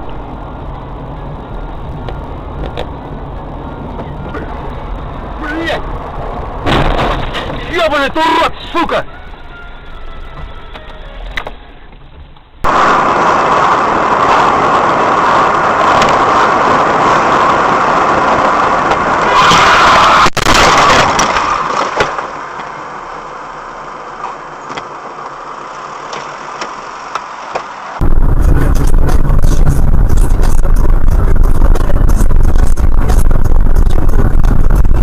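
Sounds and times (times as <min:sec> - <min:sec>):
deep rumble: 0:00.0 - 0:07.8, 0:28.0 - 0:35.0
car engine and road noise: 0:00.0 - 0:35.0.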